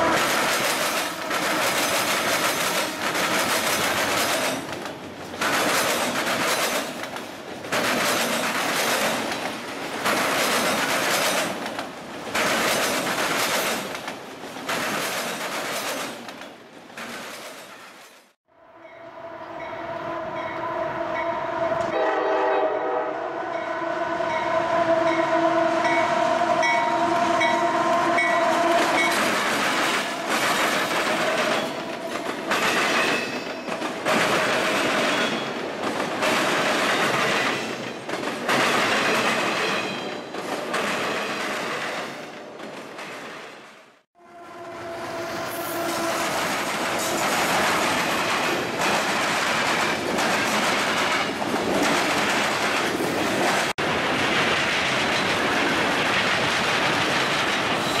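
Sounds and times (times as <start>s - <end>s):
train wheels clacking over rail joints: 0.0s - 18.3s, 28.2s - 43.7s, 45.8s - 58.0s
locomotive horn: 1.1s - 1.8s, 18.5s - 29.3s, 44.2s - 47.2s.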